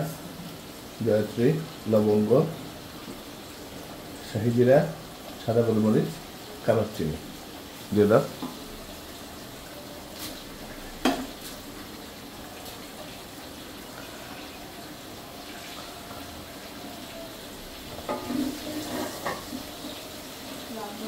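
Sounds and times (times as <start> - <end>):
spices sizzling in hot oil: 0.0 - 21.0
wooden spatula scraping pot: 17.9 - 20.0.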